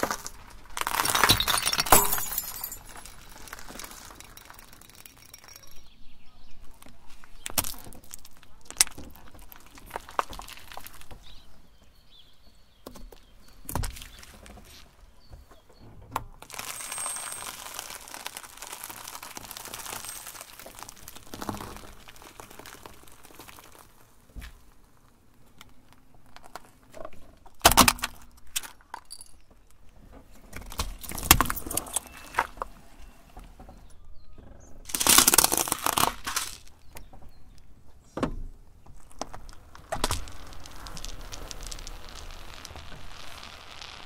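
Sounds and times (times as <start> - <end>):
tyre crushing biscuits and wrappers: 0.0 - 5.7, 7.2 - 11.5, 16.4 - 29.2, 34.9 - 37.5, 38.8 - 44.0
sharp cracks and clinks: 0.0 - 5.9, 16.4 - 24.0, 34.9 - 37.1, 39.0 - 44.0.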